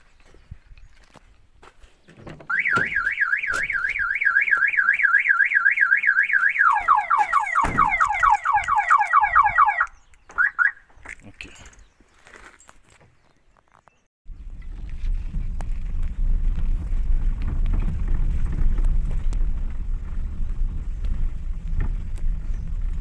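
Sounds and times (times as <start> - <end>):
car alarm siren: 2.5 - 10.8.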